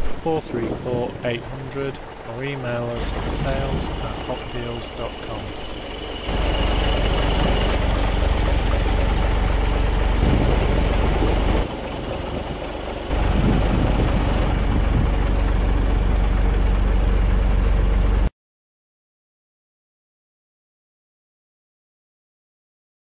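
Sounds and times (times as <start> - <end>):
diesel engine running: 0.0 - 18.3.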